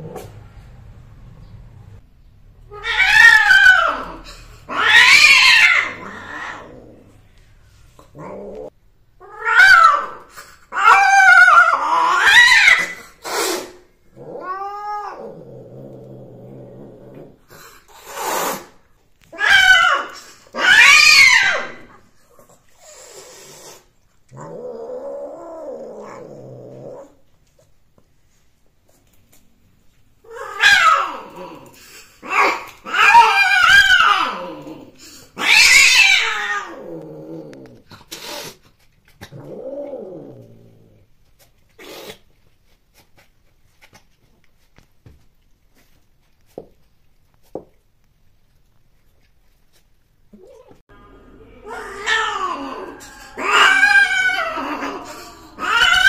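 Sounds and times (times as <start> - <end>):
cats caterwauling: 2.7 - 7.0, 8.2 - 13.0, 14.1 - 17.2, 19.3 - 22.0, 30.2 - 38.5, 50.3 - 56.0
cat growling calls: 2.7 - 7.3, 8.0 - 18.7, 22.8 - 27.2, 30.2 - 38.6, 39.2 - 41.1, 50.3 - 56.0.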